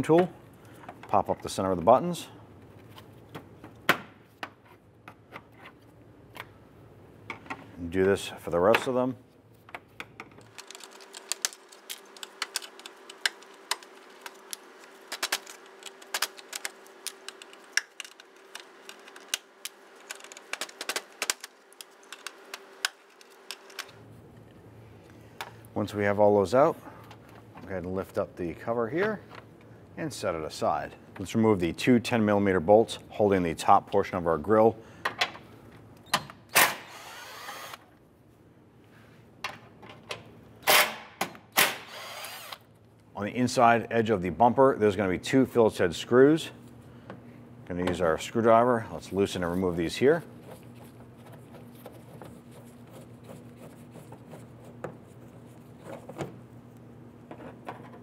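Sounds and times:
cordless drill motor bursts: 36.7s - 37.8s, 41.7s - 42.6s.

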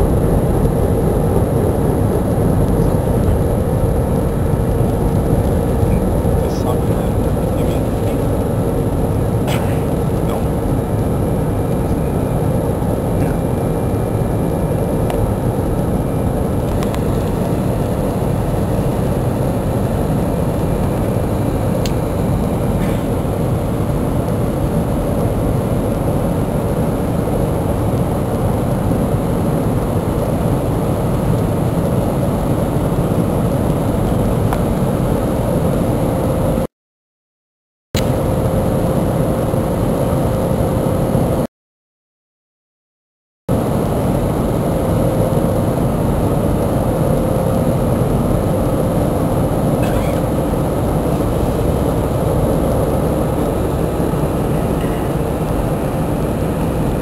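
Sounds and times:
jet engine cabin roar: 0.0s - 36.7s, 38.0s - 41.5s, 43.5s - 57.0s
faint steady hum: 43.6s - 57.0s.

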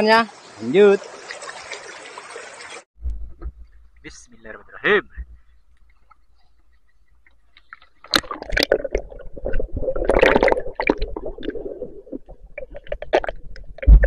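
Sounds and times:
low thump: 3.0s - 3.9s
underwater bubbling and gurgling: 6.7s - 14.0s.

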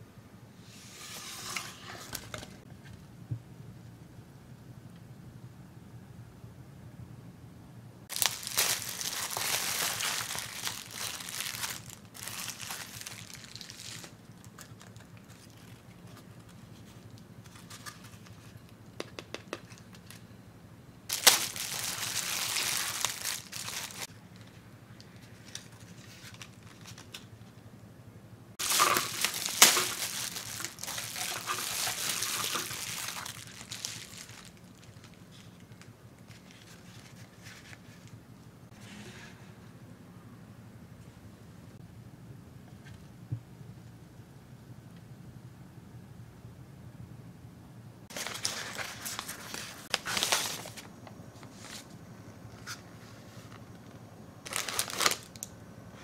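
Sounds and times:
bubble wrap crinkling: 8.1s - 18.6s, 21.1s - 24.2s, 25.4s - 27.3s, 28.6s - 38.2s, 48.1s - 51.9s, 54.4s - 55.5s.

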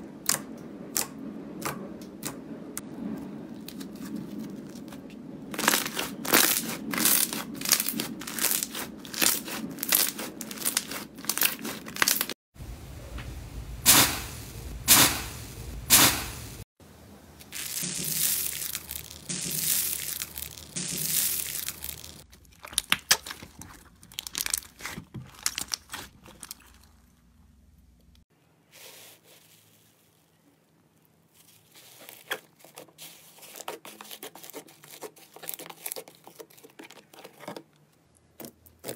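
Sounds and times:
crunching crackle of foam beads: 3.1s - 12.4s, 17.4s - 38.9s
slime squishing and popping: 5.5s - 12.3s, 17.5s - 26.9s.

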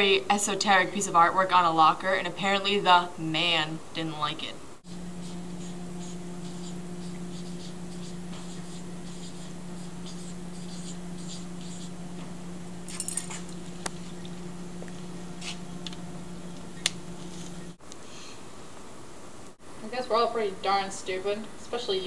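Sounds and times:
steady low hum: 0.0s - 22.0s
marker squeaking on metal: 5.2s - 12.0s.

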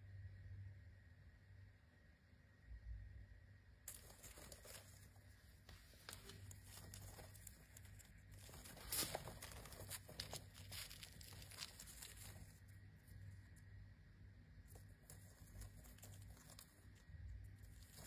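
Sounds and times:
insects scraping and crackling: 3.8s - 18.0s.

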